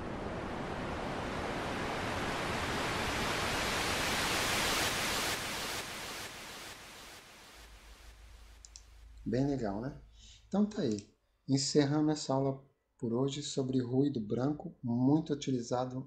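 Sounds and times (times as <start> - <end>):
synthesized white noise sweep: 0.0 - 10.9.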